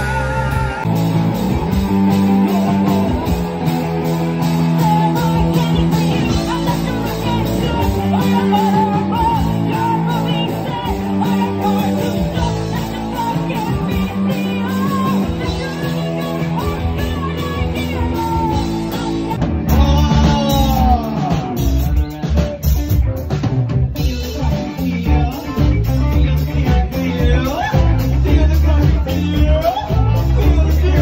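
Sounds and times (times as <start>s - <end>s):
bass guitar: 0.0s - 31.0s
drum kit: 0.0s - 31.0s
electric guitar: 0.0s - 31.0s
woman singing into a microphone: 4.8s - 19.4s.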